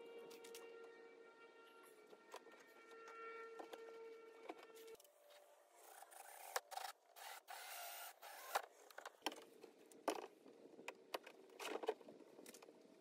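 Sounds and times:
cordless drill drilling plastic: 0:06.1 - 0:08.6.

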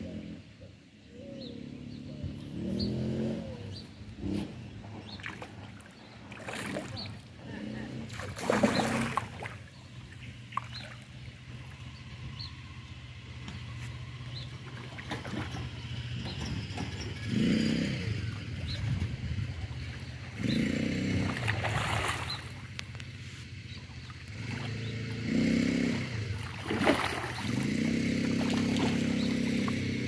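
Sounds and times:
fish splashing at surface: 0:08.1 - 0:09.6, 0:21.2 - 0:22.7, 0:26.4 - 0:29.8.

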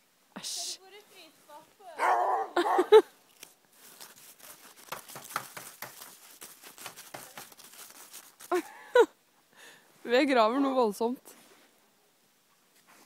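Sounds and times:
crunching and scraping in snow: 0:03.4 - 0:08.8.

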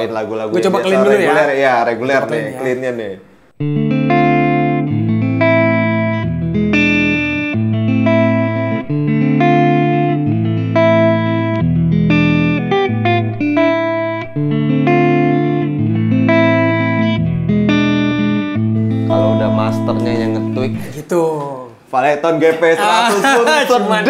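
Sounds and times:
clean electric guitar chords: 0:03.6 - 0:21.0.

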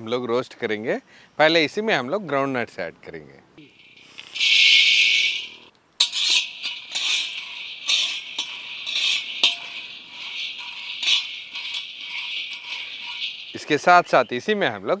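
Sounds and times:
nuts rustling in a pan: 0:03.7 - 0:15.0.

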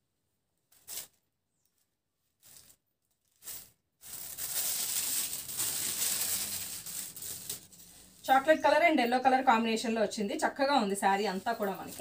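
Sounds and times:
fabric rustling: 0:02.2 - 0:08.4, 0:11.1 - 0:12.0.

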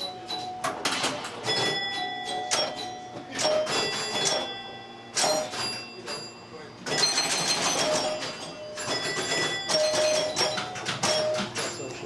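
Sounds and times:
pinball chime bells: 0:00.0 - 0:12.0
relays and score reels clicking: 0:06.9 - 0:12.0.

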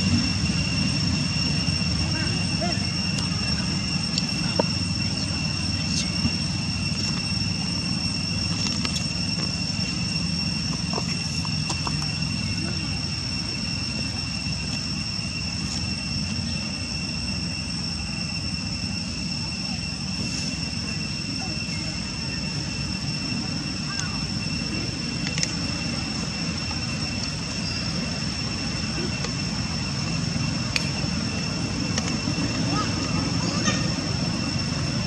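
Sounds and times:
high insect drone: 0:00.0 - 0:35.0
low outdoor rumble: 0:00.0 - 0:35.0.

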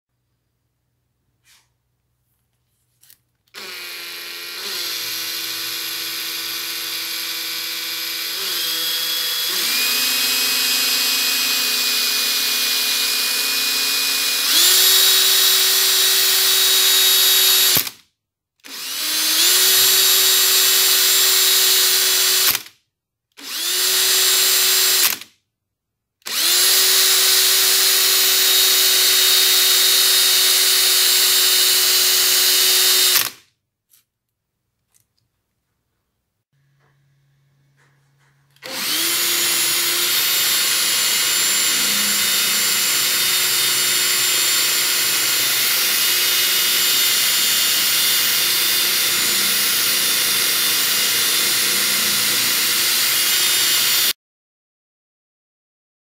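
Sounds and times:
cordless drill motor whine: 0:03.5 - 0:17.9, 0:18.7 - 0:22.7, 0:23.4 - 0:25.2, 0:26.3 - 0:33.3, 0:38.6 - 0:54.2.

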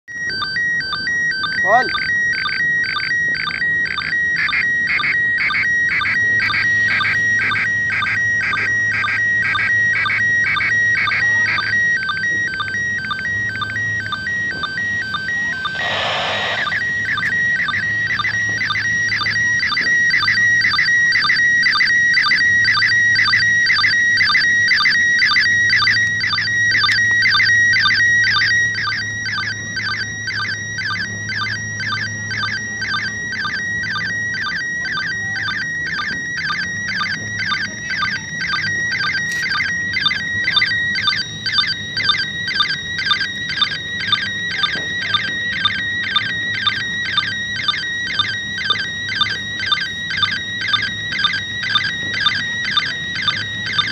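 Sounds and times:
shrill warbling radio tone: 0:01.3 - 0:02.2, 0:10.0 - 0:17.5
burst of radio static: 0:15.6 - 0:16.8.

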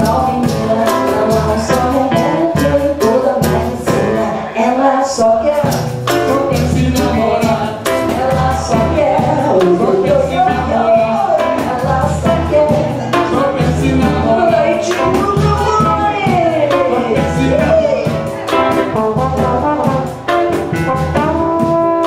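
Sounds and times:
guitar: 0:00.0 - 0:22.0
trombone melody: 0:05.5 - 0:22.0.

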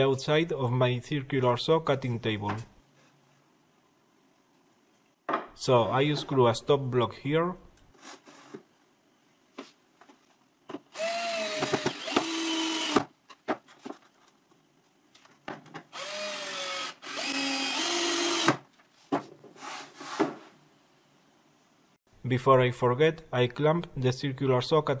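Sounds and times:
cordless drill motor whine: 0:11.0 - 0:13.1, 0:16.0 - 0:18.5.

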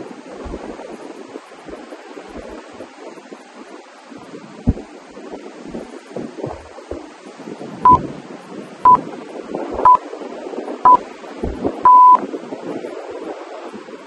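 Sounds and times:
countdown timer beeps: 0:11.8 - 0:12.2.

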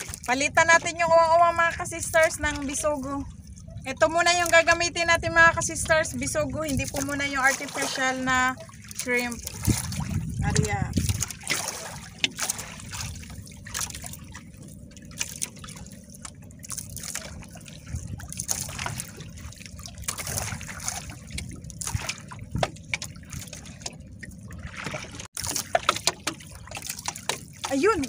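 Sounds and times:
steady low rumble: 0:00.0 - 0:25.3
water lapping against boat hull: 0:00.0 - 0:28.0
water splashes: 0:00.0 - 0:28.0.

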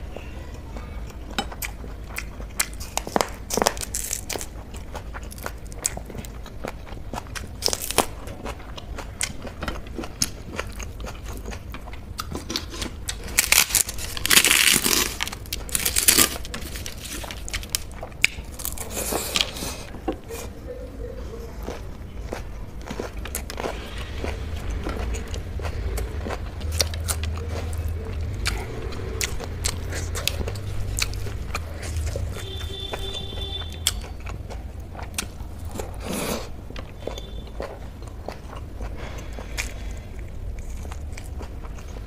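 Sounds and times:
crunching: 0:09.2 - 0:19.9
chewing smacks: 0:21.6 - 0:36.2.

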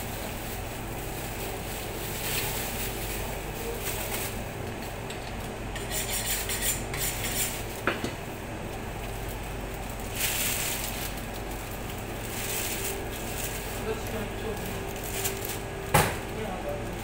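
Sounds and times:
steady low hum: 0:00.0 - 0:17.0
knife scraping and cutting meat: 0:05.7 - 0:07.8.

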